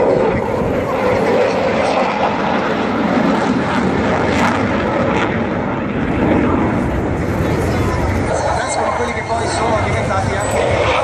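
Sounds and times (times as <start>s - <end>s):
jet flying overhead: 0.0s - 11.0s.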